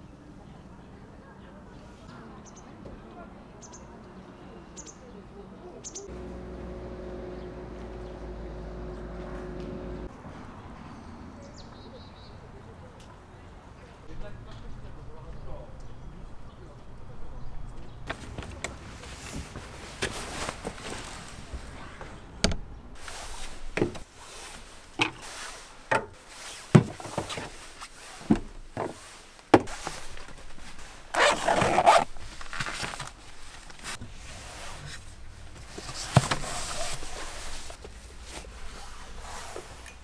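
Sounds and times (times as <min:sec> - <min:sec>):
rustling of things handled: 0:18.1 - 0:22.4, 0:23.0 - 0:40.0
zipper being pulled: 0:31.1 - 0:33.0.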